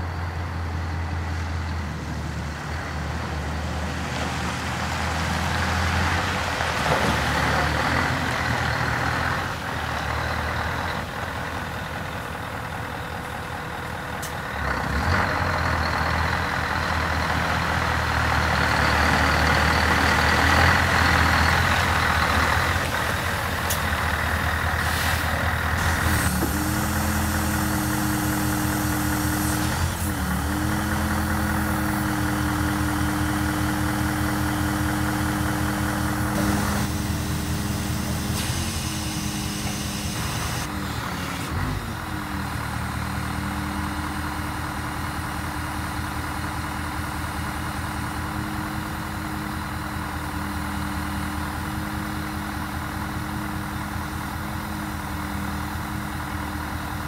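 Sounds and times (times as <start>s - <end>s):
diesel truck engine running: 0.0s - 57.0s
hydraulic whine: 24.8s - 42.4s.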